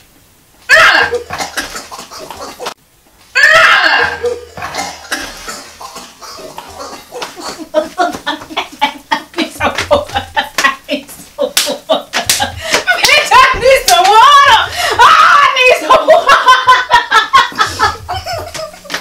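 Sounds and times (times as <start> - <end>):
woman gagging and retching: 0.7 - 2.8, 3.4 - 10.7
bursts of laughter: 6.4 - 19.0.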